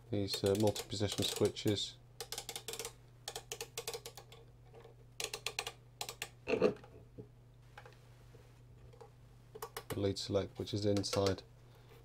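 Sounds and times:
rotary switches clicking: 0:00.2 - 0:04.4, 0:05.2 - 0:06.4.

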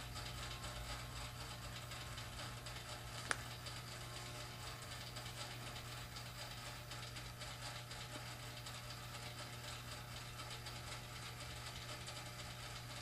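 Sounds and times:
low room hum: 0:00.0 - 0:13.0
sharp click: 0:03.2 - 0:03.6.

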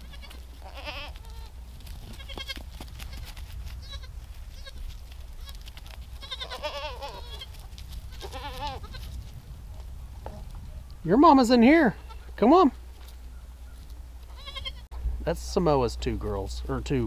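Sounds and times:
goats bleating: 0:00.0 - 0:09.2, 0:11.9 - 0:12.4, 0:14.2 - 0:14.9.

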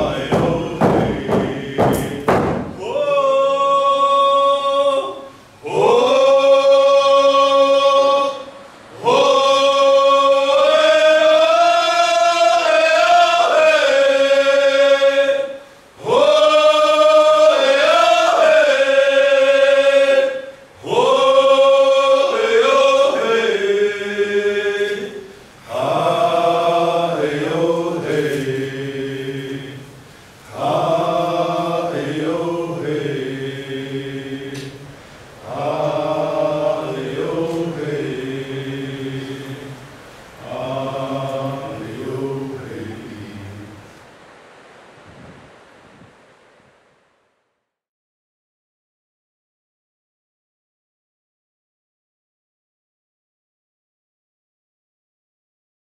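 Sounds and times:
deeper voices chanting: 0:00.0 - 0:20.2, 0:30.5 - 0:43.9.

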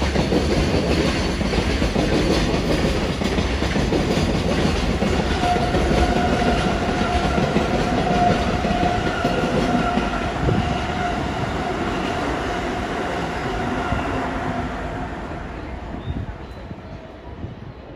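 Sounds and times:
train wheels clattering: 0:00.0 - 0:14.1
train rumble: 0:00.0 - 0:17.9.

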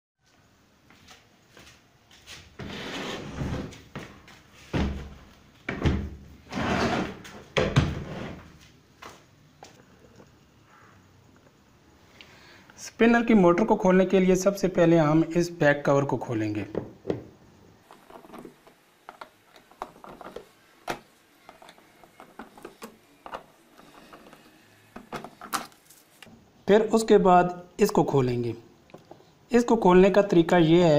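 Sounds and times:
plastic cabinet scraping: 0:02.6 - 0:03.8, 0:06.4 - 0:08.5.

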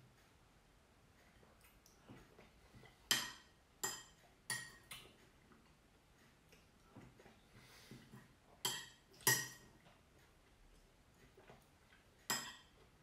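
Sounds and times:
metal spoon clinking ceramic bowl: 0:08.6 - 0:09.6, 0:12.3 - 0:12.7.

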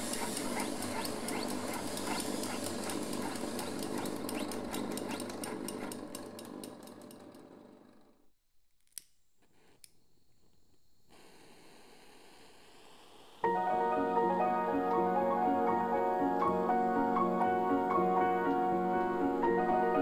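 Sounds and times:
rapid mechanical clicking: 0:00.0 - 0:07.8
faint hiss: 0:09.4 - 0:13.5.

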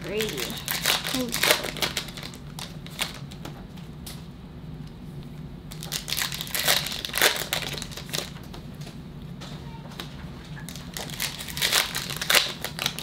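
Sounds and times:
packaging crinkling and tearing: 0:00.0 - 0:03.5, 0:05.7 - 0:08.6, 0:10.0 - 0:13.0
low steady hum: 0:00.0 - 0:13.0.

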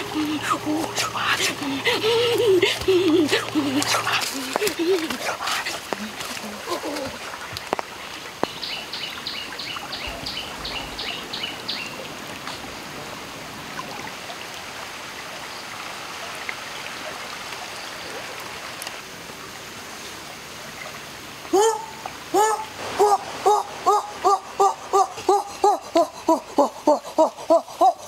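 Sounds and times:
river water flowing: 0:00.0 - 0:28.0
bird chirping: 0:08.4 - 0:12.7.

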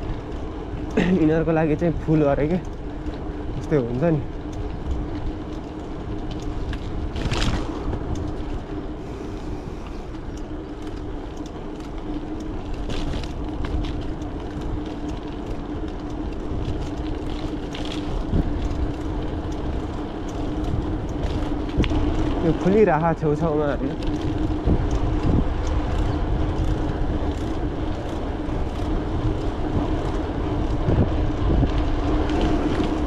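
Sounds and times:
bicycle tyres rolling: 0:00.0 - 0:33.0
wind rumbling on microphone: 0:00.0 - 0:33.0
small rattling clicks: 0:00.3 - 0:08.8, 0:09.8 - 0:33.0
steady hum: 0:04.4 - 0:22.2.

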